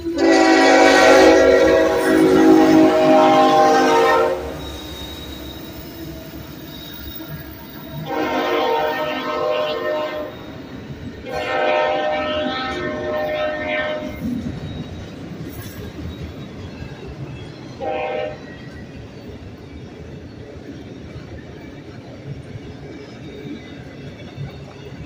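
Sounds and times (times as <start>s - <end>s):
locomotive air horn blasts: 0.0s - 5.6s, 8.0s - 10.6s, 11.2s - 14.2s, 17.8s - 18.4s
rumble of passing train: 0.0s - 25.0s.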